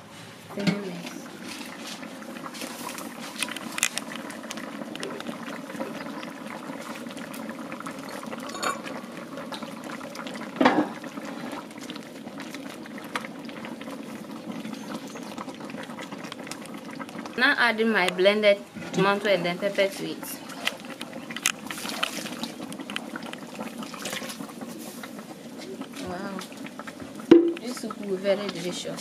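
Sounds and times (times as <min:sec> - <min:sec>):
soup boiling and bubbling: 0:00.0 - 0:29.0
knock or clatter: 0:27.3 - 0:27.6.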